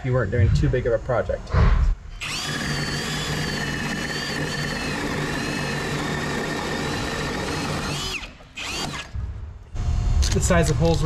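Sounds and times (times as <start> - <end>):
drill motor whining under load: 2.1 - 9.2.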